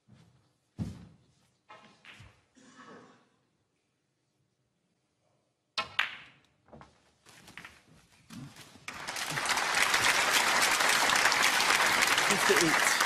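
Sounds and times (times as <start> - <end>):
audience applause: 8.9 - 13.0.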